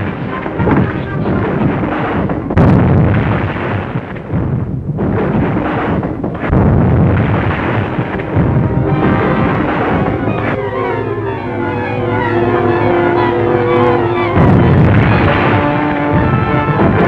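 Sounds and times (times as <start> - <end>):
film music: 0.0 - 2.6, 7.3 - 17.0
sharp thunder cracks: 0.0 - 17.0
thunder rumble: 0.0 - 17.0.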